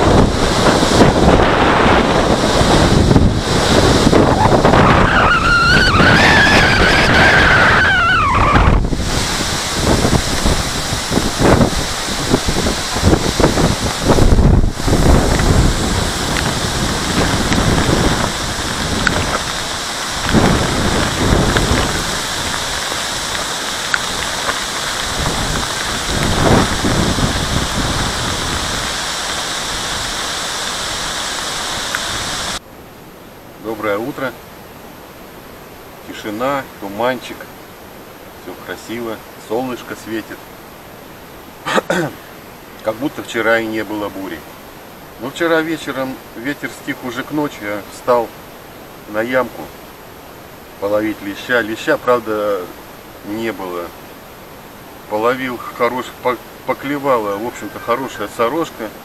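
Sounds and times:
storm wind gusting: 0:00.0 - 0:32.6
wind buffeting microphone: 0:00.0 - 0:32.6.

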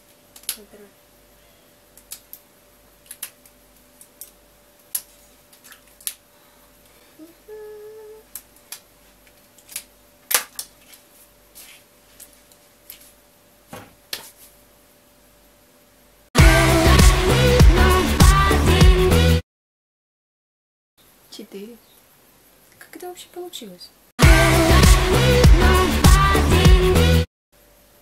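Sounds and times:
person humming a note: 0:07.2 - 0:08.3.

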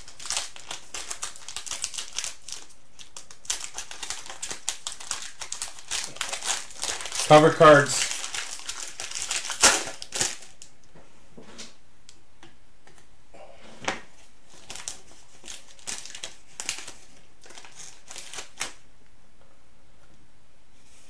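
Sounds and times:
foil wrapper crinkling and tearing: 0:00.0 - 0:10.7, 0:14.5 - 0:18.8.

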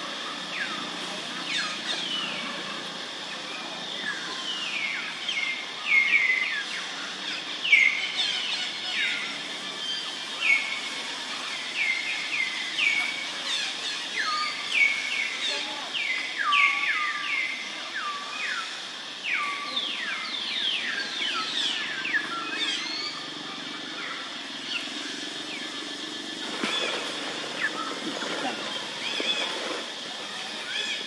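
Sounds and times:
outdoor background hiss: 0:00.0 - 0:31.0
birds chirping: 0:11.6 - 0:31.0.

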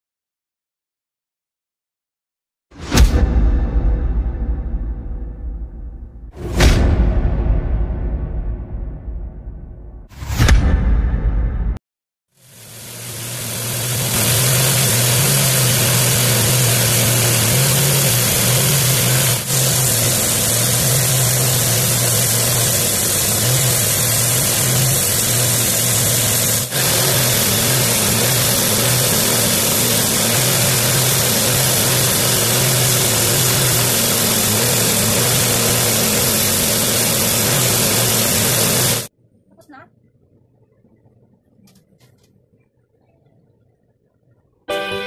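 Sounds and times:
motor saw cutting board: 0:12.4 - 0:39.1.

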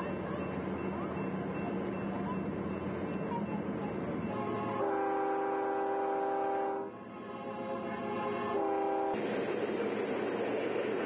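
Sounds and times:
train horn blasts: 0:04.3 - 0:09.2.

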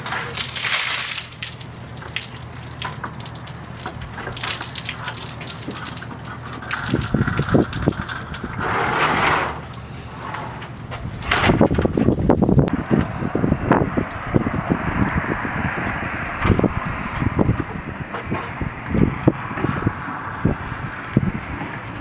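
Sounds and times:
water gushing and splashing: 0:00.0 - 0:12.7.

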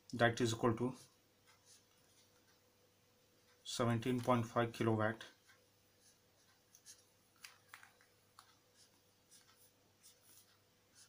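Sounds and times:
marker scratching on paper: 0:06.0 - 0:07.1, 0:08.4 - 0:11.0.

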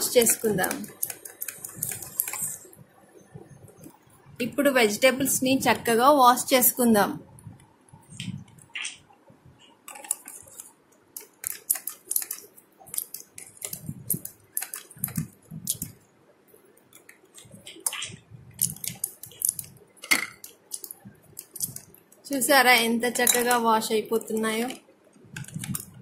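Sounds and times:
plastic toys clicking and tapping: 0:00.0 - 0:02.8, 0:09.8 - 0:16.0, 0:16.8 - 0:26.0.

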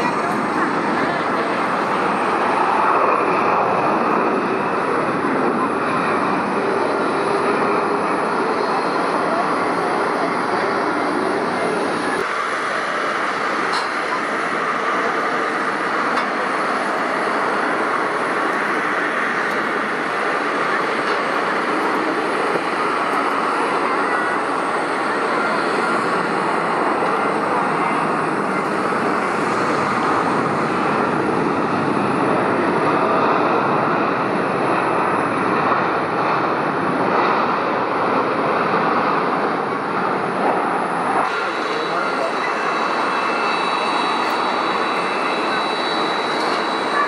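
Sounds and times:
jet engines rushing: 0:00.0 - 0:47.0.

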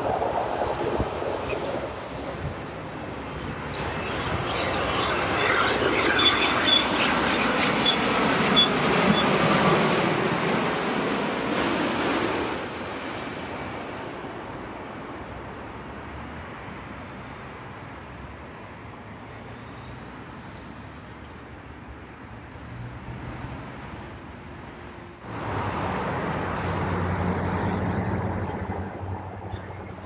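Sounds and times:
airliner engine rush: 0:00.0 - 0:22.2, 0:23.2 - 0:30.0
low engine drone: 0:25.2 - 0:30.0.

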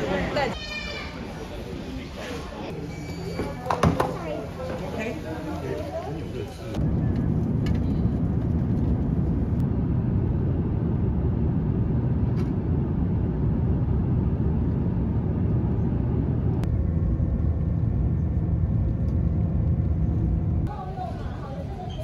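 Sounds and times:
jet cabin roar: 0:06.7 - 0:21.5.

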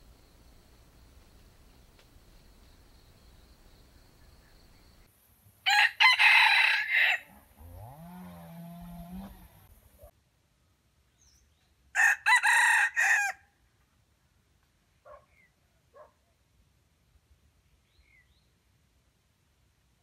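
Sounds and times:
rooster crowing: 0:05.7 - 0:09.4, 0:12.0 - 0:13.4.

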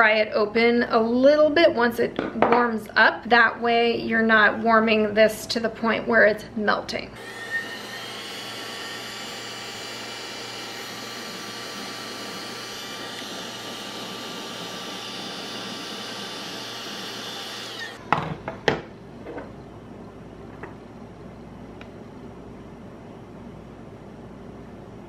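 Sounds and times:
heat gun fan whirring: 0:07.0 - 0:18.9.

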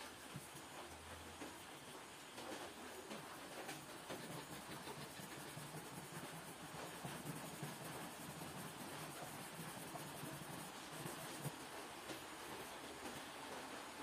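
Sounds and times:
pencil scratching on paper: 0:03.0 - 0:11.5.

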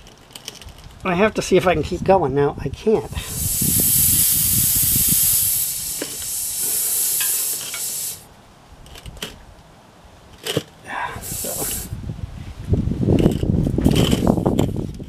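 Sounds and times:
air hissing from tire puncture: 0:03.1 - 0:08.3, 0:10.9 - 0:12.0.

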